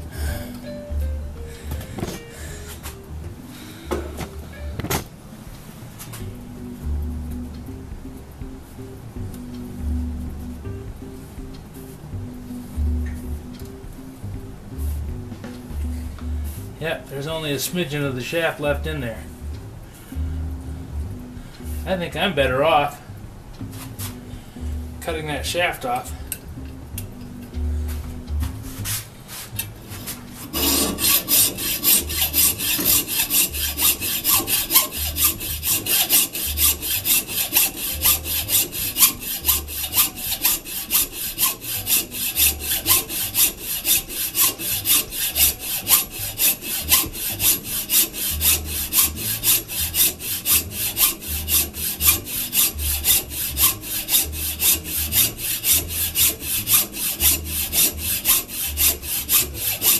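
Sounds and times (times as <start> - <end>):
hacksaw cutting metal: 30.4 - 59.9.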